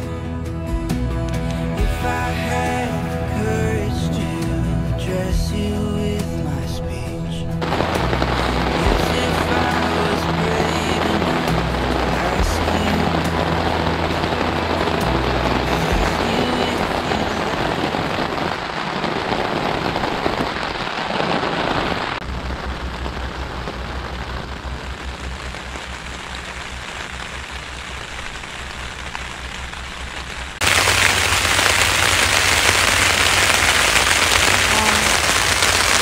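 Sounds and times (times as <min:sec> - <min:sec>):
heavy rain on a tent: 0:07.6 - 0:36.0.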